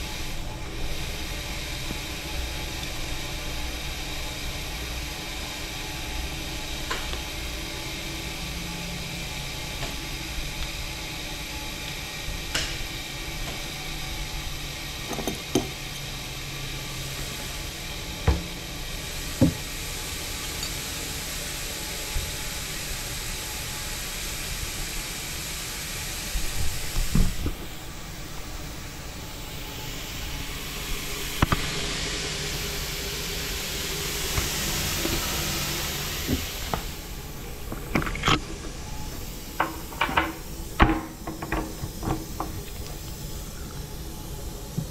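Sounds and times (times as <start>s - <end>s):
hiss: 0.0s - 44.9s
grinder machine hum: 25.0s - 44.9s.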